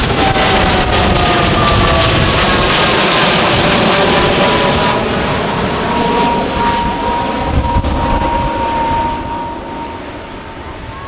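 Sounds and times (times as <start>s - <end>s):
jet roar with falling whine: 0.0s - 11.0s.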